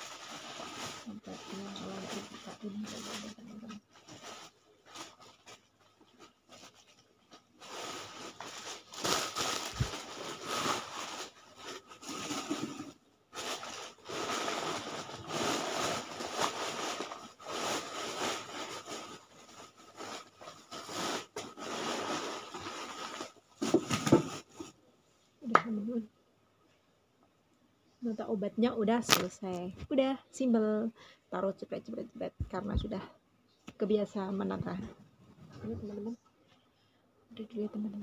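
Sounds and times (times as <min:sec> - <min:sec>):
packaging crinkling and tearing: 0:07.6 - 0:24.6.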